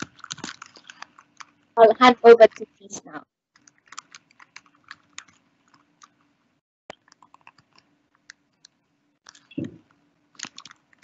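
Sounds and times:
faint keyboard typing: 0:00.0 - 0:02.8, 0:03.6 - 0:11.0.

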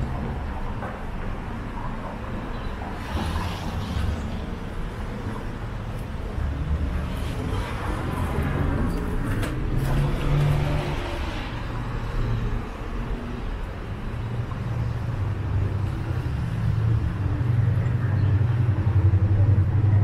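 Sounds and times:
low engine rumble: 0:11.9 - 0:20.0.

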